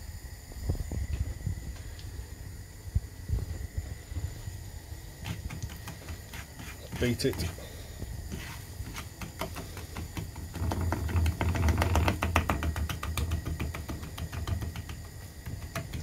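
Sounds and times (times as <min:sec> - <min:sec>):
gas flame rumble: 0:00.0 - 0:16.0
wooden spoon beating syrup: 0:05.2 - 0:16.0.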